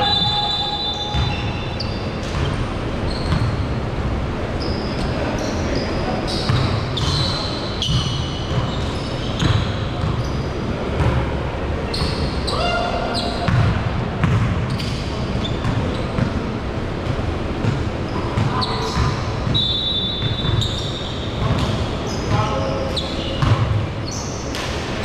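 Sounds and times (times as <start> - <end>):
sneaker squeaks: 0.0 - 3.9, 4.5 - 16.5, 17.6 - 24.9
players' voices in gym: 0.0 - 25.0
basketballs bouncing on hardwood: 9.4 - 10.3, 13.4 - 14.7, 23.4 - 23.8.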